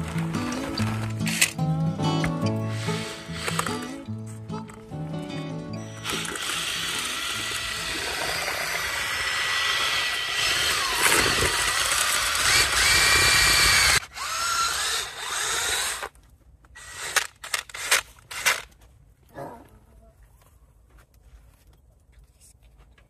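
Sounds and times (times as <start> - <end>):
drill motor whining: 2.5 - 4.1, 5.9 - 16.1, 16.8 - 18.0.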